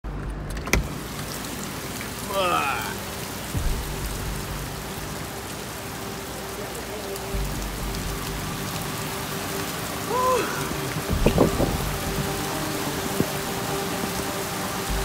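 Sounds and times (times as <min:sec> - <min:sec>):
heavy rain hissing on pavement: 0:00.7 - 0:15.0
loud low thumps: 0:03.5 - 0:05.7, 0:07.3 - 0:08.8, 0:11.0 - 0:13.3.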